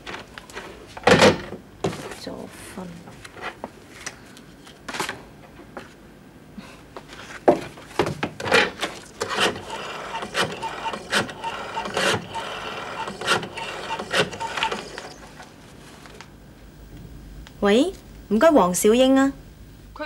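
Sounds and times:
rotary telephone dial whirring: 9.2 - 15.4.

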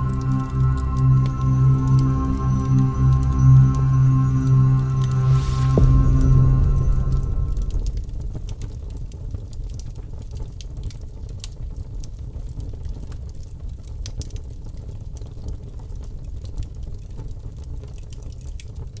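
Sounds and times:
low rumble: 0.0 - 10.1.

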